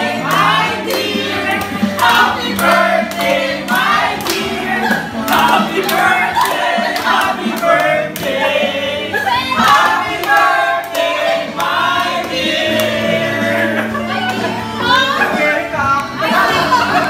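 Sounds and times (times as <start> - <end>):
group singing in unison: 0.0 - 17.0
hand clapping: 0.2 - 8.4.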